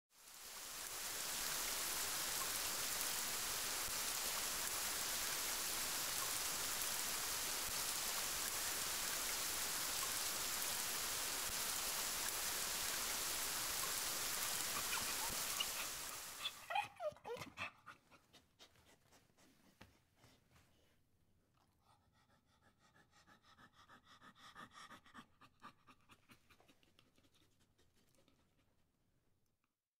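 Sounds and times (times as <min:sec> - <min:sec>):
steady hiss: 0:00.2 - 0:16.7
dog whining: 0:14.6 - 0:18.4
dog panting: 0:14.7 - 0:20.5, 0:21.6 - 0:28.8.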